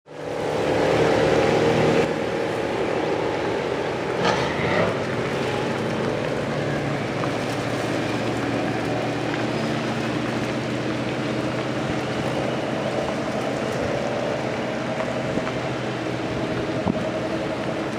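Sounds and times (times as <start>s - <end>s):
car engines running: 0.1s - 17.9s.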